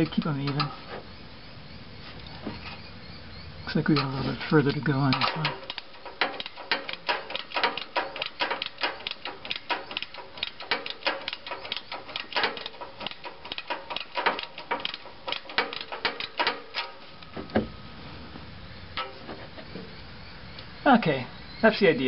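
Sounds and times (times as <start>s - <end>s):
ratchet wrench clicking: 5.1s - 17.0s.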